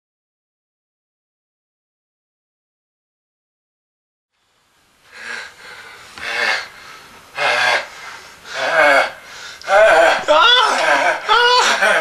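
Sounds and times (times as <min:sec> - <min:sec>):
person gasping wheezy breaths: 0:05.1 - 0:12.0.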